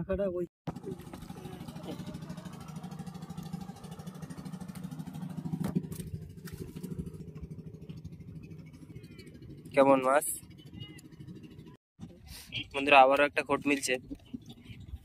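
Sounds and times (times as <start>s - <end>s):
small engine running: 0.7s - 11.8s.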